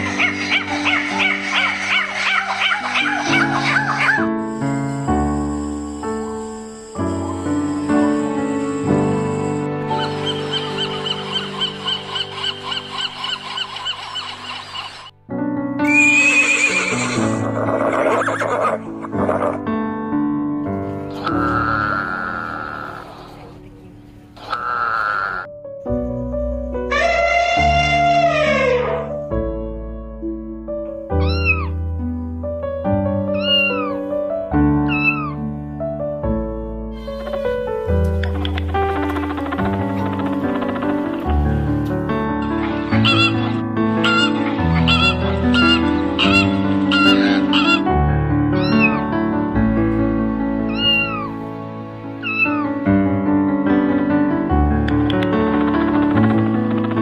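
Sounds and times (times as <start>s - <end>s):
background music: 0.0s - 57.0s
kitten meowing: 31.2s - 31.7s, 48.6s - 49.0s, 50.7s - 51.3s, 52.2s - 52.6s.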